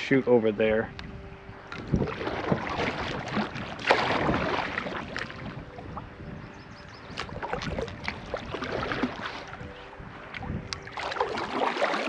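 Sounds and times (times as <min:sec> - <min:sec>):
paddle splashing through water: 0:01.7 - 0:06.1, 0:07.0 - 0:12.0.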